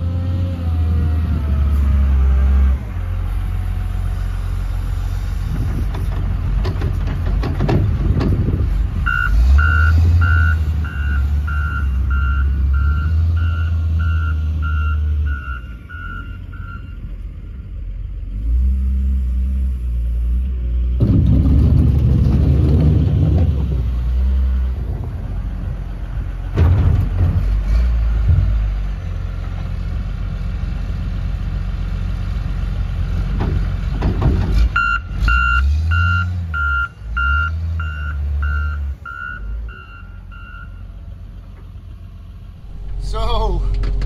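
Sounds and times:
loader diesel engine running: 0.0s - 44.0s
backup alarm beeping: 9.1s - 17.0s.

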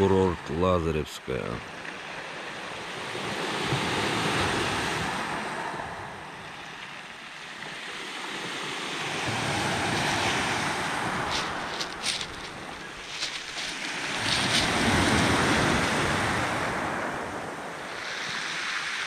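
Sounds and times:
waves washing on pebble beach: 1.7s - 19.0s.

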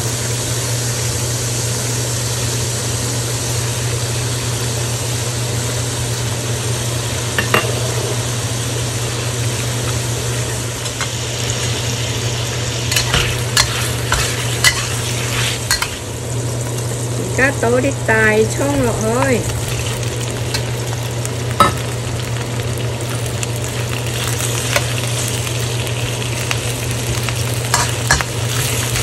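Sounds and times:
food sizzling in hot oil: 0.0s - 29.0s
low steady hum: 0.0s - 29.0s
metal spatula scraping a wok: 12.9s - 16.0s.

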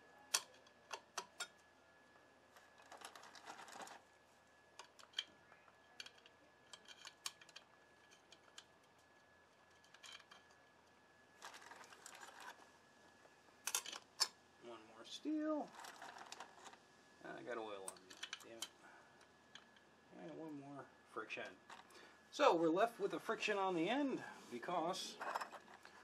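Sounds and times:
light metal scraping: 24.5s - 26.0s.

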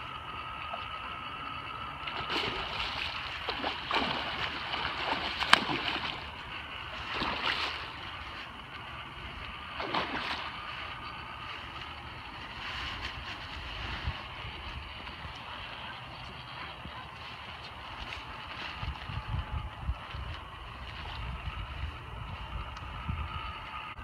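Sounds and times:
fish thrashing and splashing: 2.0s - 15.3s.

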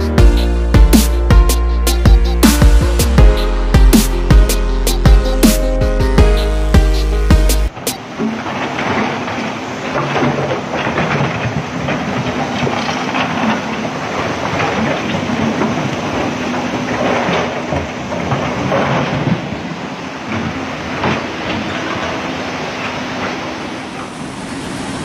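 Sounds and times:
floodwater rushing over rocks: 7.7s - 24.4s.

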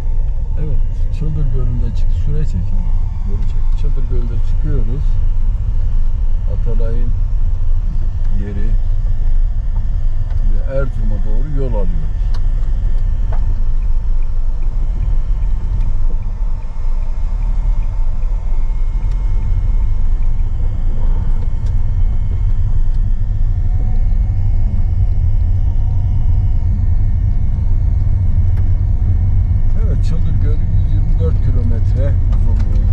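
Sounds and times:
car engine running: 0.0s - 32.9s
car tyres on gravel road: 0.0s - 32.9s.

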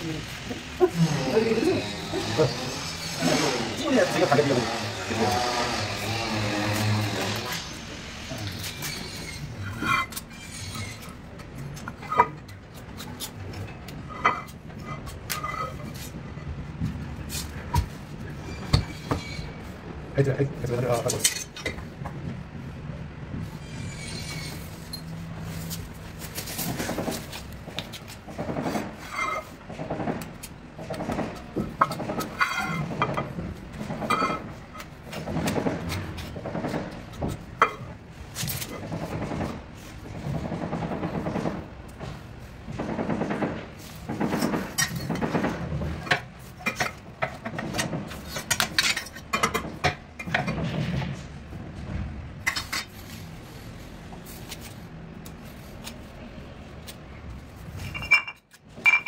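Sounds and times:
metal spatula scraping on stone: 0.8s - 12.4s, 23.6s - 25.8s.

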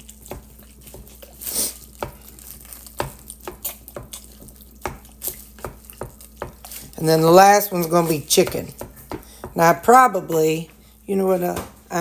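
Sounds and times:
meat chopper striking ground beef: 1.9s - 7.0s.

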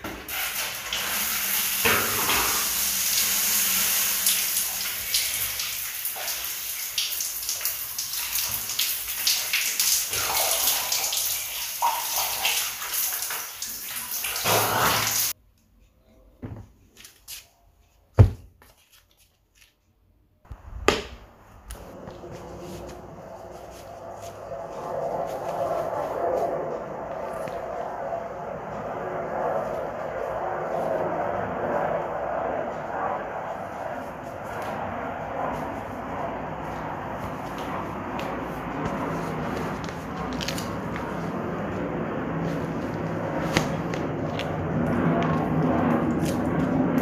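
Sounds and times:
shower water spraying: 0.0s - 15.4s.

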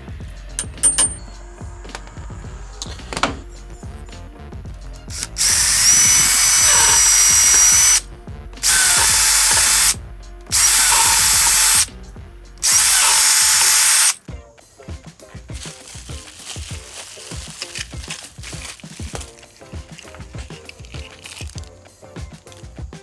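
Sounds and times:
cordless drill whining: 5.1s - 8.0s, 8.6s - 11.9s, 12.6s - 14.2s.

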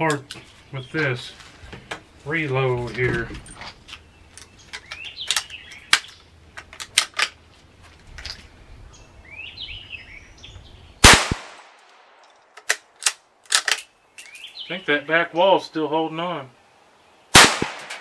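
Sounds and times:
birds chirping: 0.0s - 17.9s
rifle shot with echo: 11.0s - 12.2s, 17.3s - 18.0s.

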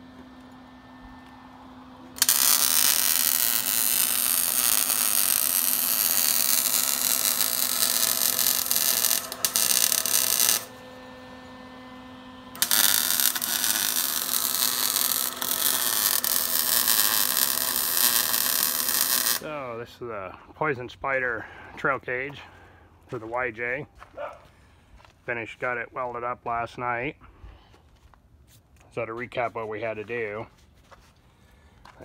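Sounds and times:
welder humming: 0.0s - 20.8s
welding arc crackling: 2.1s - 10.8s, 12.5s - 19.6s.

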